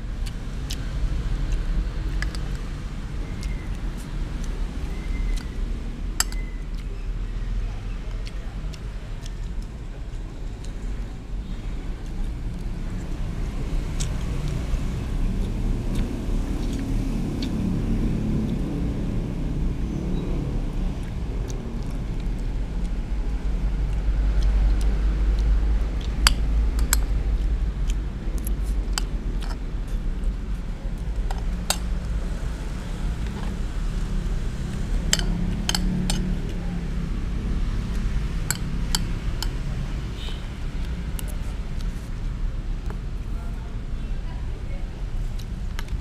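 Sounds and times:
metal spoon clinking on plates: 0:35.1 - 0:36.3, 0:38.5 - 0:39.6.

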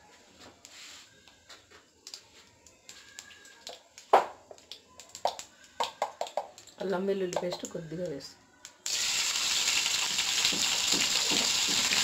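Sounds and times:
seeds crackling in hot oil: 0:08.8 - 0:12.0.

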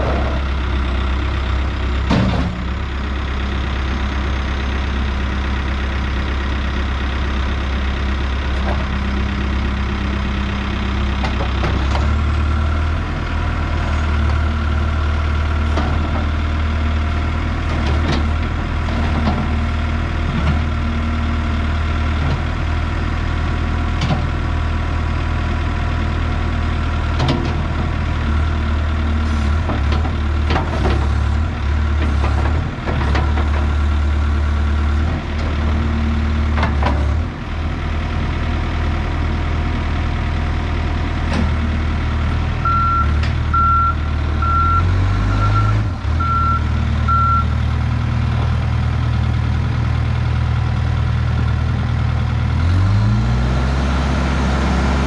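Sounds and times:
diesel engine running: 0:00.0 - 0:55.0
reversing alarm beeping: 0:42.6 - 0:47.6.

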